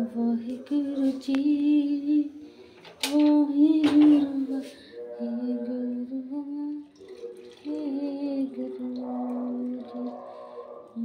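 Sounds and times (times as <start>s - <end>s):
woman humming: 3.1s - 6.9s.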